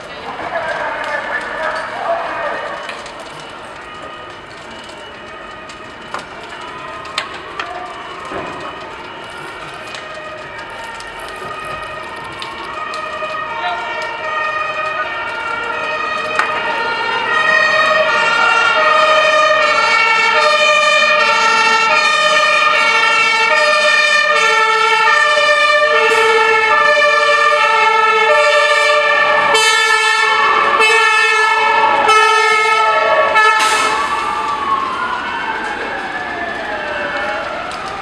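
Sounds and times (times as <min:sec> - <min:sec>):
wailing siren: 0:00.0 - 0:38.0
two-tone siren: 0:00.5 - 0:38.0.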